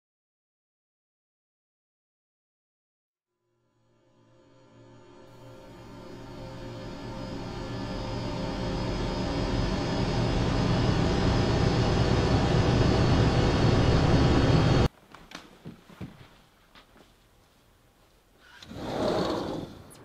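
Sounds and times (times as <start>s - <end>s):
horror soundtrack drone: 3.7s - 14.9s.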